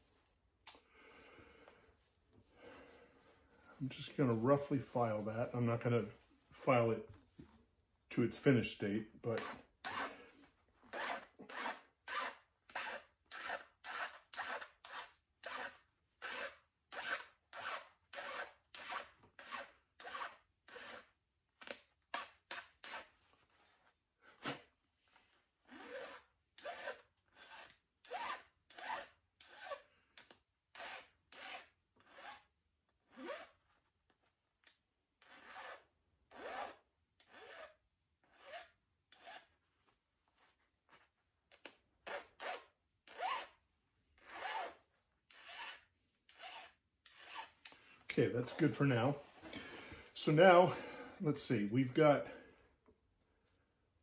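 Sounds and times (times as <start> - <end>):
hand file rasping: 9.4 - 10.3, 10.9 - 21.1, 25.7 - 29.9, 30.7 - 32.5, 35.2 - 39.5, 44.2 - 47.8.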